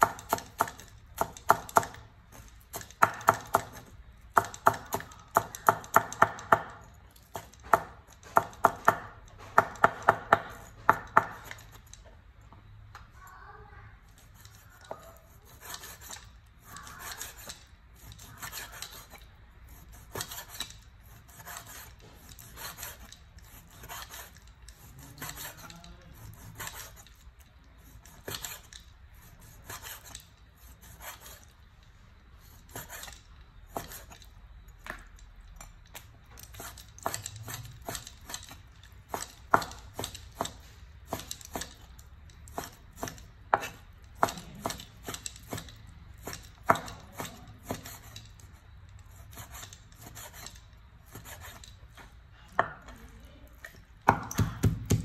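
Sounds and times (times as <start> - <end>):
cleaver chopping meat on wooden board: 0.0 - 2.0, 2.8 - 6.8, 7.4 - 11.6, 36.6 - 41.8, 42.5 - 48.1, 54.0 - 55.0
blade scraping cutting board: 14.2 - 27.2, 27.8 - 31.5, 32.4 - 34.2, 42.5 - 55.0.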